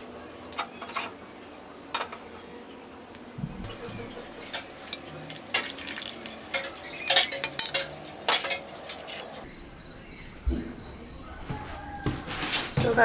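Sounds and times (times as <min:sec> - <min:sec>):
dishes and cutlery clinking: 0:03.4 - 0:09.5.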